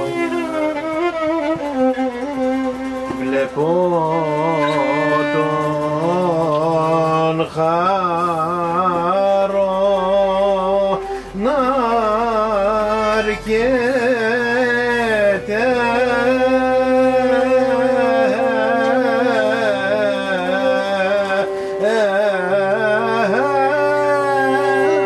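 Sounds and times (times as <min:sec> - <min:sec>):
violin: 0:00.0 - 0:07.6, 0:08.2 - 0:25.0
lute: 0:00.0 - 0:25.0
person singing held notes: 0:02.7 - 0:07.6.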